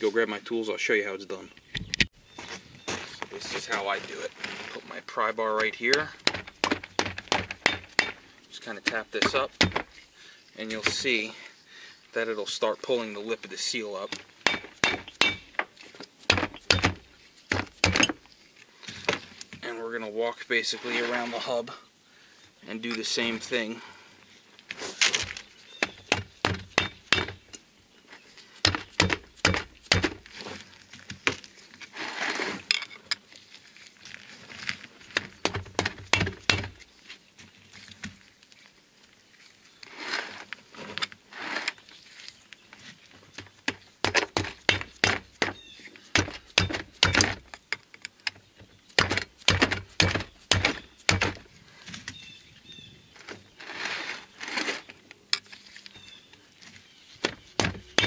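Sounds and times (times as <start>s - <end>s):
hammer tapping pry bar: 14.5s - 15.5s.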